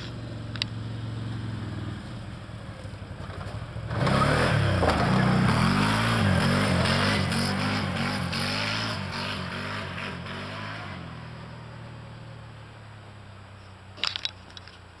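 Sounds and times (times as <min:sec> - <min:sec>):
quad bike engine revving: 0:00.0 - 0:02.4, 0:03.0 - 0:12.4
clatter of clicks: 0:14.0 - 0:14.8.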